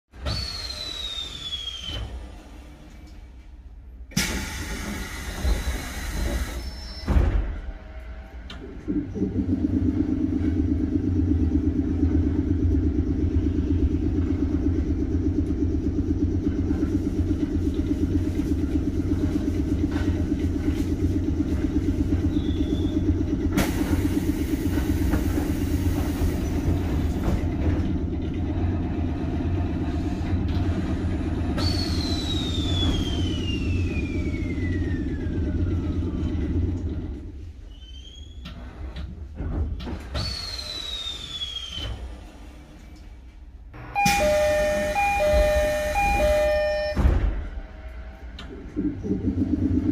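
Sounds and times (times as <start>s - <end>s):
train sliding doors: 0.2s - 9.5s, 16.6s - 49.1s
train equipment droning: 0.2s - 49.9s
whistle falling in pitch: 44.0s - 47.2s.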